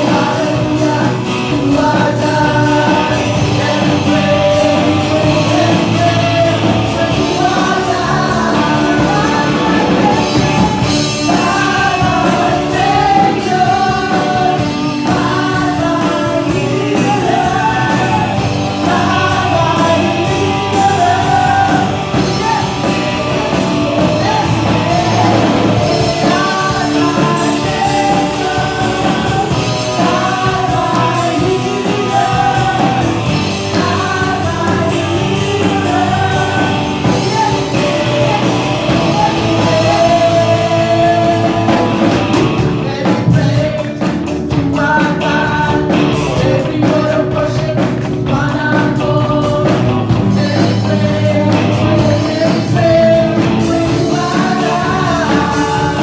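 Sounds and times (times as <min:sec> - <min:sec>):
woman singing into a microphone: 0:00.0 - 0:42.1
bass guitar: 0:00.0 - 0:56.0
electric guitar: 0:00.0 - 0:56.0.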